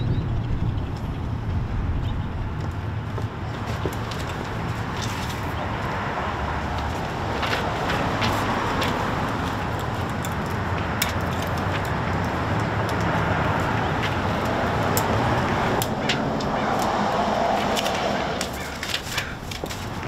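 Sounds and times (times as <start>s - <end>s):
road traffic hum: 0.0s - 20.0s
tape and paper rustling: 3.6s - 6.0s, 6.6s - 20.0s.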